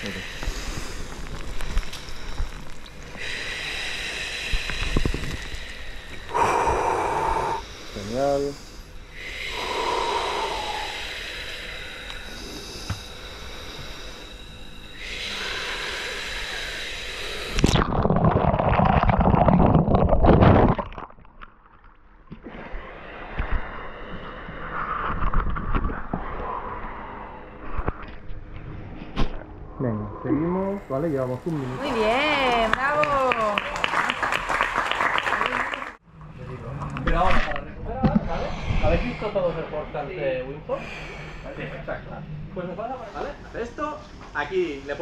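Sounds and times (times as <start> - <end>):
person exhaling hard through mouth: 3.2 - 7.7, 9.2 - 14.2
whistling exhale: 3.2 - 17.8.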